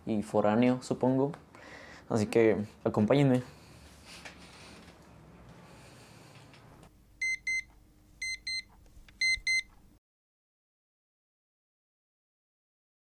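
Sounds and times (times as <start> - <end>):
phone alarm beeping: 7.2 - 9.7.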